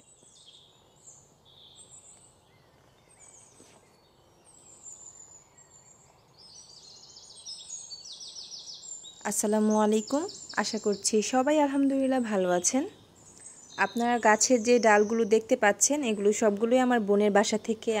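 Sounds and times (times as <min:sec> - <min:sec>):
small birds chirping: 0:00.0 - 0:18.0.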